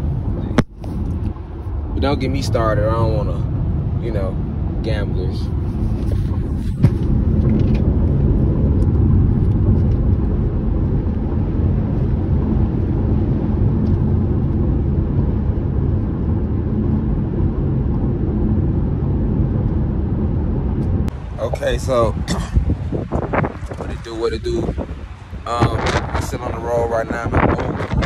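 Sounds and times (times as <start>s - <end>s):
road and engine rumble: 0.0s - 28.0s.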